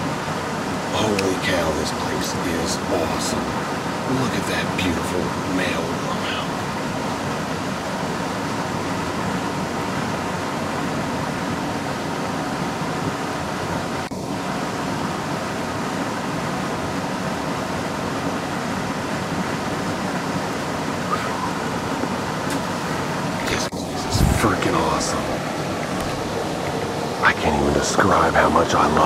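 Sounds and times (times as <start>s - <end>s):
water rushing through spillway: 0.0s - 9.4s.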